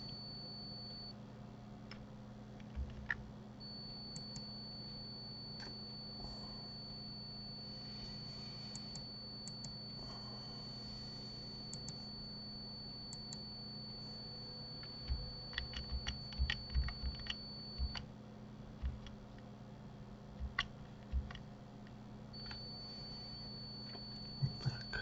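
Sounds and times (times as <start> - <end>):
faint high-pitched whine: 0.0 - 25.0
low hum: 0.0 - 25.0
keyboard key presses: 2.6 - 3.2, 14.8 - 18.0, 18.8 - 19.2, 20.4 - 21.4
computer mouse clicks: 14.8 - 18.0.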